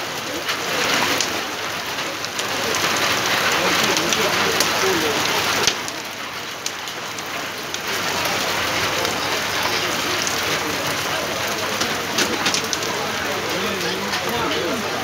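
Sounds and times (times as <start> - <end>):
heavy rain pouring: 0.0 - 15.0.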